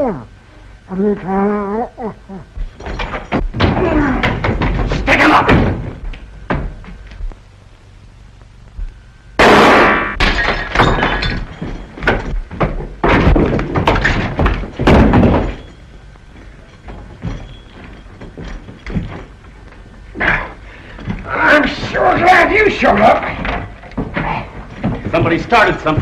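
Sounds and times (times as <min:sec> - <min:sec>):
revolver gunshots: 0:09.4 - 0:10.2.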